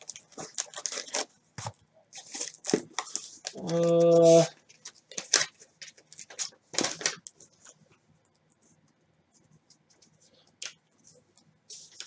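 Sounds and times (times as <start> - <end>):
package scratching and rustling: 0.0 - 7.8.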